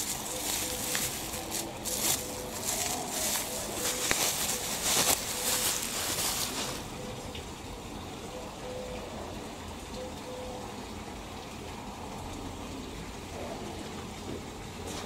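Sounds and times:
bubble wrap crinkling: 0.0 - 7.0.

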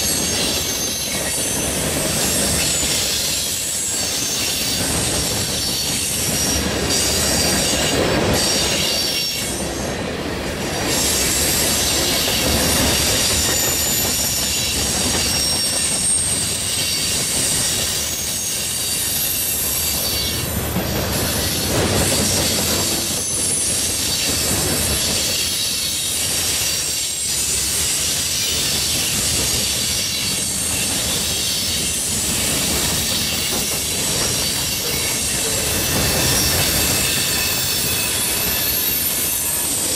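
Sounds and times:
train wheels rumbling on rail: 0.0 - 39.9
high-pitched wheel squeal: 26.9 - 39.9.

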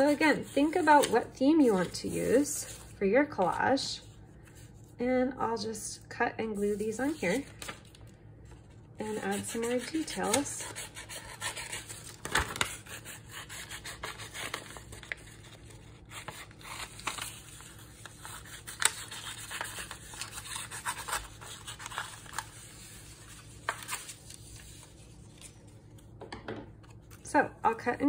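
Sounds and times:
paper rustling: 7.0 - 26.1.

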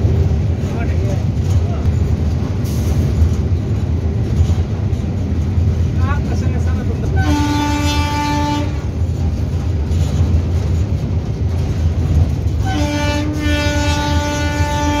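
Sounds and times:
locomotive rumble on track: 0.0 - 15.0
locomotive horn blast: 7.1 - 8.9, 12.6 - 15.0.

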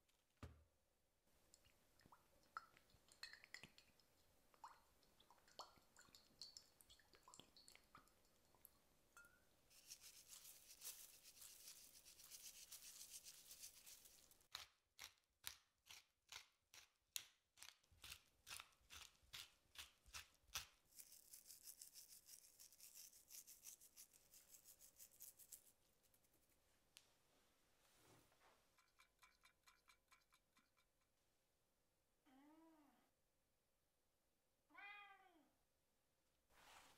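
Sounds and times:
salt and herbs sprinkling: 9.7 - 14.7, 18.1 - 25.8.

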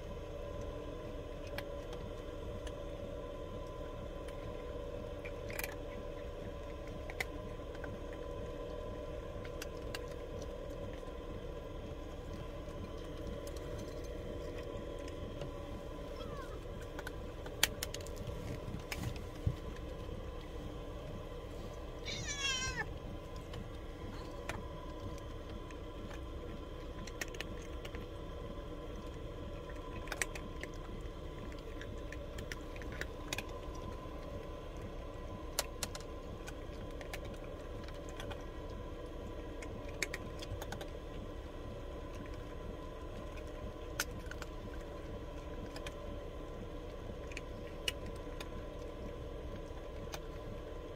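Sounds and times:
cat eating kibble: 0.0 - 50.9
cat meowing: 16.2 - 16.6, 22.0 - 22.9.

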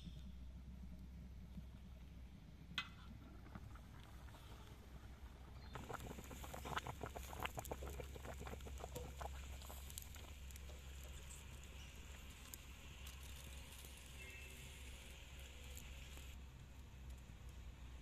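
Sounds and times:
low hum: 0.0 - 16.4
broth bubbling in a wok: 2.5 - 18.0.

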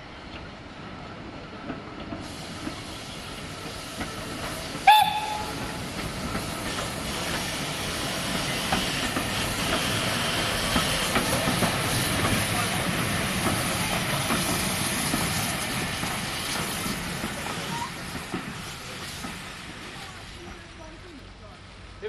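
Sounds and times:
steam locomotive hissing and running: 0.0 - 22.0
steam locomotive whistle: 4.8 - 5.9.

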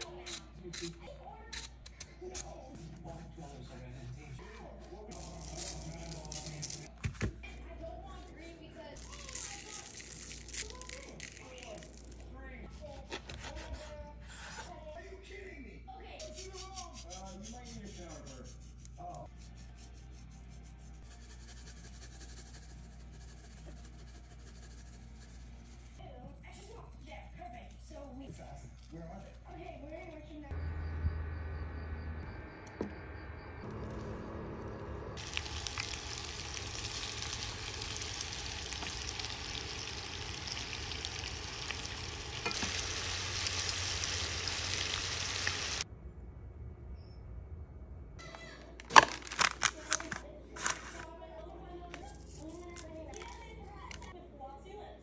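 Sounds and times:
seasoning sprinkled on meat: 5.1 - 6.9, 35.2 - 45.8.

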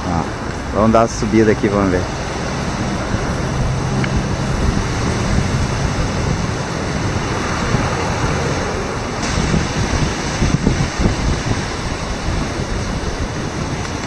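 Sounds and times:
small waves washing onto sand: 0.0 - 14.0
wind on microphone: 0.0 - 14.0.

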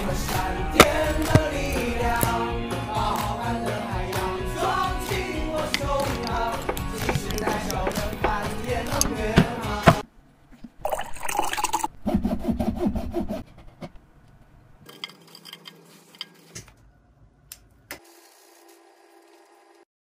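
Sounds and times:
liquid sound: 10.5 - 12.0.

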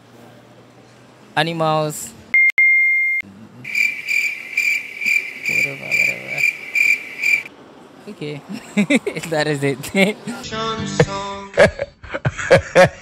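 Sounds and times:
crickets chirping sound effect: 3.6 - 7.5.

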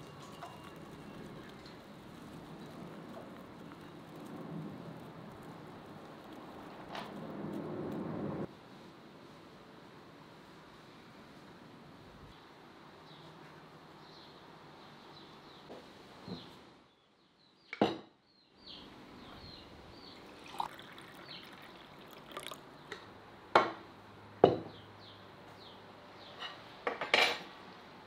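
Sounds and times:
drink pouring into a cup: 20.2 - 23.0
ceramic clinks on a wooden table: 24.4 - 24.7.

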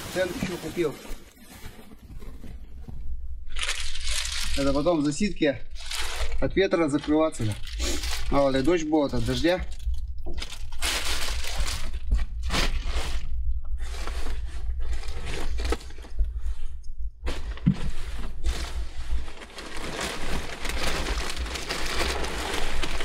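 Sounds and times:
plastic packaging crinkling: 0.0 - 2.4, 3.5 - 13.3, 18.4 - 23.0
bags and clothing rummaged: 0.0 - 16.4, 17.2 - 23.0.

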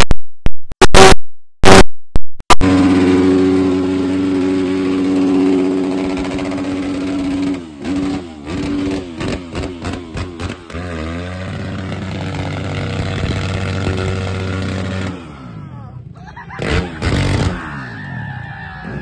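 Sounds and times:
vehicle engine running: 2.5 - 17.8.

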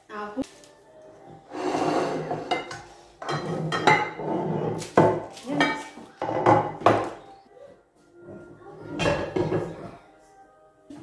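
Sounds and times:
pots and dishes clanking: 1.5 - 7.3, 8.9 - 9.9.

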